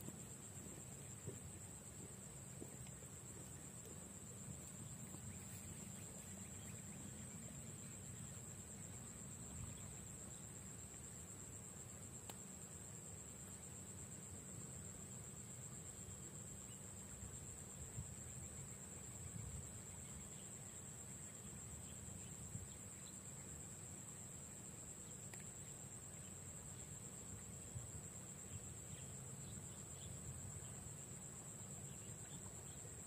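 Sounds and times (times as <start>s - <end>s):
faint ticks: 0.0s - 4.0s, 12.1s - 12.5s, 25.2s - 25.7s
insects droning: 0.0s - 33.0s.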